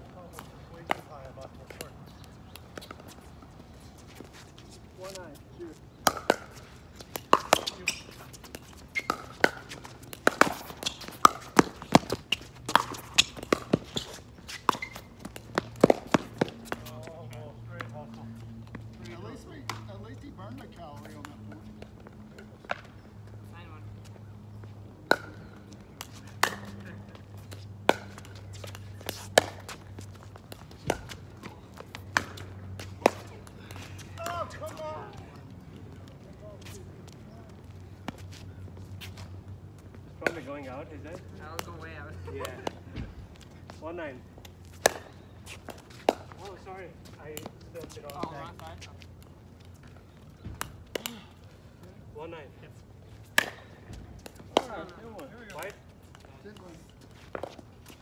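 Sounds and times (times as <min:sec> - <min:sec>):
footsteps on court: 0:00.1 - 0:51.7
ball bouncing on hard court: 0:06.0 - 0:17.1.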